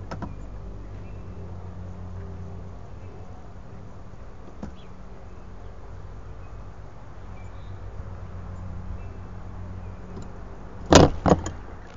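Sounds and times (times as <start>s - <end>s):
low buzzing hum: 0.0s - 11.9s.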